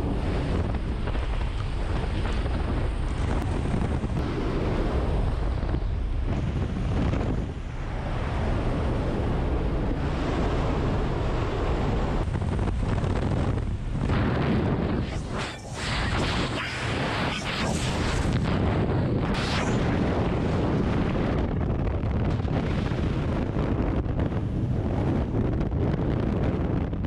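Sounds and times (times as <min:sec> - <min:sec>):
aircraft engine noise: 0:00.0 - 0:25.4
wind buffeting microphone: 0:00.0 - 0:27.0
wind rushing: 0:00.0 - 0:27.0.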